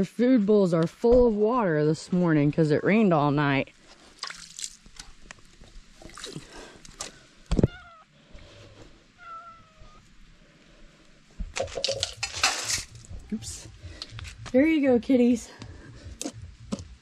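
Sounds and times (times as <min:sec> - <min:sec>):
water splashing onto grass: 0:04.0 - 0:07.1, 0:11.6 - 0:13.1
cat meowing: 0:07.6 - 0:08.1, 0:09.2 - 0:10.1.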